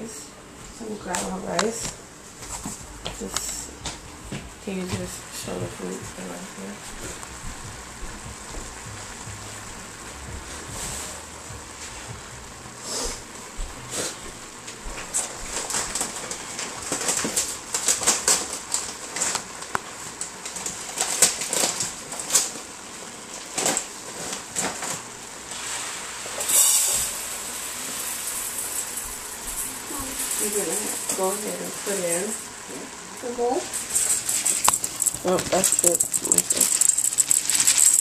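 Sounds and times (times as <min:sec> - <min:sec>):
food frying in a skillet: 0:22.6 - 0:38.0.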